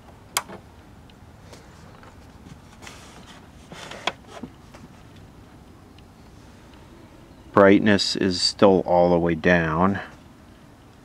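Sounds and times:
handling rustles: 0:01.4 - 0:05.4.

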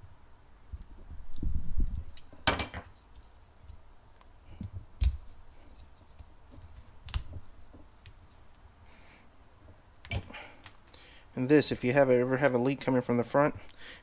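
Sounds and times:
metal valve parts clicking: 0:10.0 - 0:10.4.

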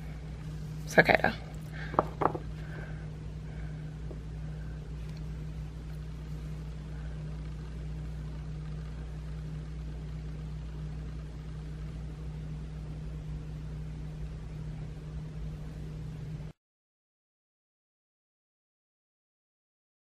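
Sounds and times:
steady low hum: 0:00.0 - 0:16.6.

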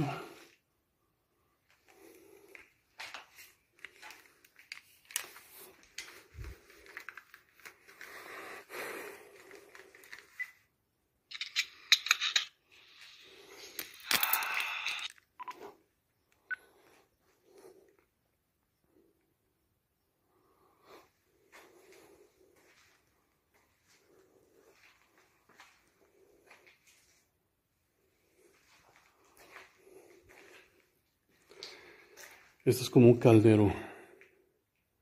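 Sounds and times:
rustling handling noise: 0:02.5 - 0:10.6.

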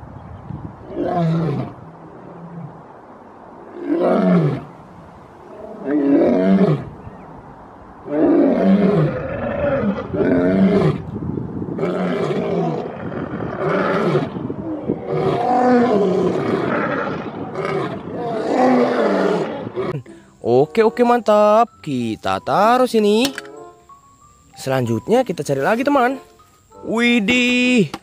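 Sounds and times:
lions roaring: 0:08.0 - 0:11.0, 0:11.8 - 0:20.0.

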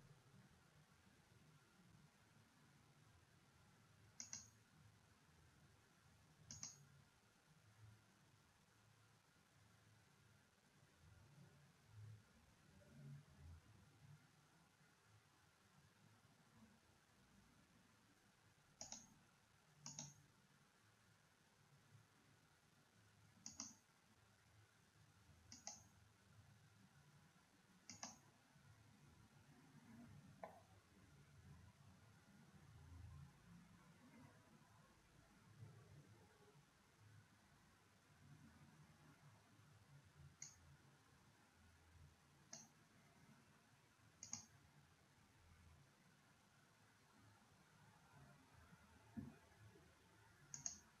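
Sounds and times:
faint low hum: 0:00.0 - 0:51.0
computer mouse clicking: 0:04.2 - 0:04.6, 0:06.4 - 0:06.9, 0:18.8 - 0:19.2, 0:19.8 - 0:20.3, 0:23.4 - 0:23.9, 0:25.5 - 0:26.0, 0:27.8 - 0:28.3, 0:29.9 - 0:30.8, 0:40.3 - 0:40.7, 0:42.5 - 0:42.8, 0:44.2 - 0:44.6, 0:49.2 - 0:49.4, 0:50.4 - 0:51.0.

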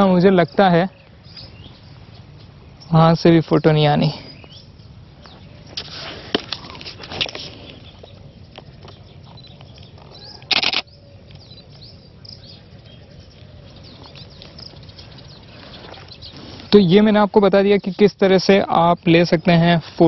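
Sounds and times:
faint bird chirps: 0:00.0 - 0:20.0
camera shutter burst: 0:10.5 - 0:10.9.

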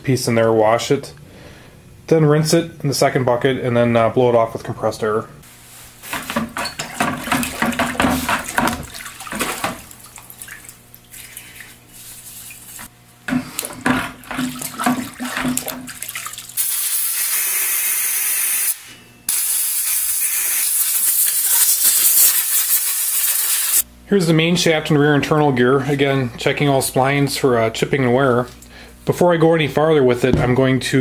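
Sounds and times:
liquid sloshing in a bucket: 0:06.0 - 0:16.6
compressed air hissing: 0:16.6 - 0:23.8.

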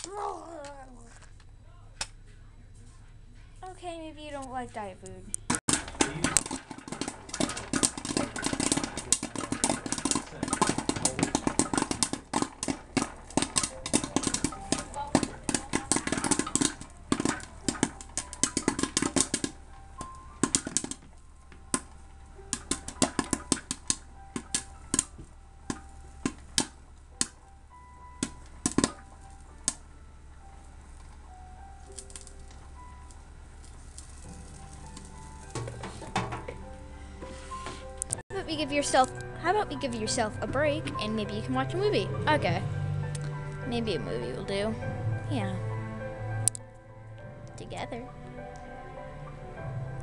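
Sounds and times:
popcorn popping: 0:00.0 - 0:02.2, 0:04.3 - 0:45.6
popcorn popper motor hum: 0:05.3 - 0:37.2.

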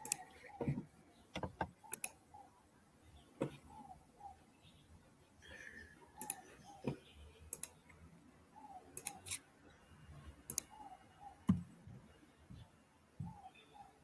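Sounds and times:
computer mouse and keyboard clicks: 0:01.4 - 0:02.2, 0:06.2 - 0:07.8, 0:09.0 - 0:09.4.

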